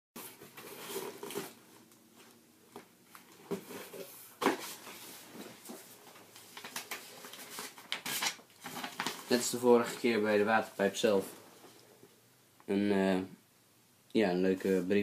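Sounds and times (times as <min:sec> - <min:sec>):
cardboard box rustling: 0:00.2 - 0:01.7
paper sheets rustling: 0:03.6 - 0:10.4.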